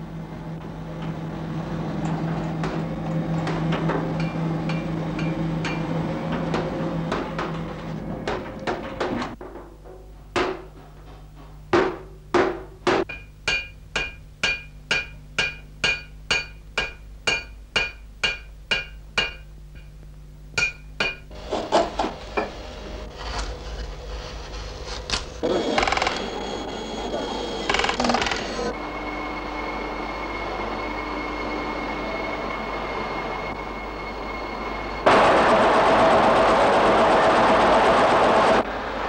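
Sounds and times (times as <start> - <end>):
hammer beating metal tray: 11.7 - 19.9, 20.6 - 21.3.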